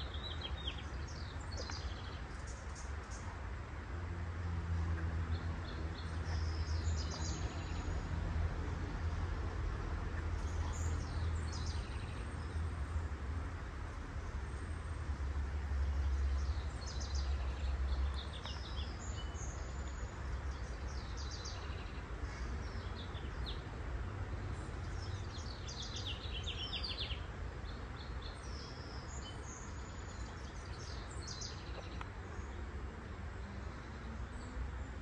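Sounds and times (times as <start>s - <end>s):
small birds chirping: 0.0s - 3.4s, 10.2s - 12.9s, 15.9s - 23.7s, 24.5s - 35.0s.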